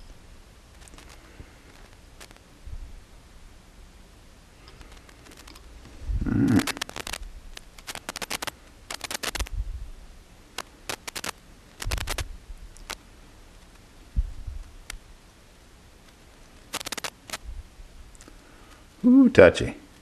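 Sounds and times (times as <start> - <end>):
small clicks and light scrapes: 0.7 - 2.5, 4.6 - 9.5, 10.5 - 13.9, 14.6 - 15.0, 16.0 - 17.4.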